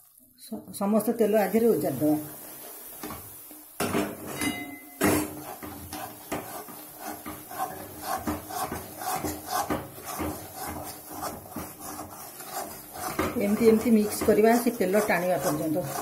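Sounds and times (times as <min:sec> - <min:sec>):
spoon scraping metal pan: 0:04.1 - 0:16.0.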